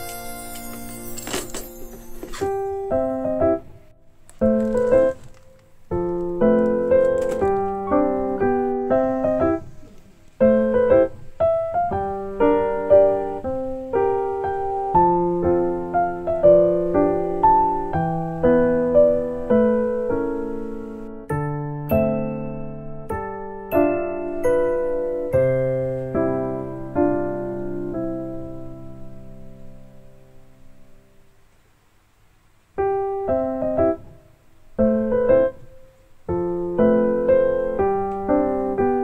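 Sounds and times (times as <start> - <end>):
piano melody: 0.0 - 31.0, 32.8 - 39.0.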